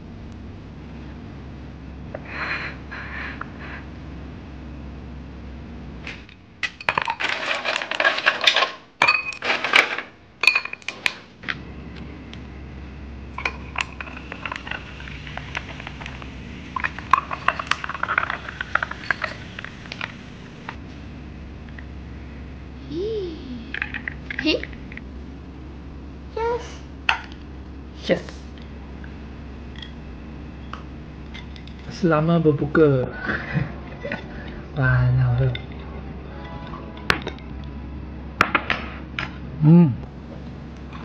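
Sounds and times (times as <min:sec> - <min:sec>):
ice cubes clinking into glasses: 0:06.7 - 0:10.9, 0:16.7 - 0:20.1
drink pouring: 0:13.3 - 0:20.6
stirring with glassy clinks: 0:16.8 - 0:19.7.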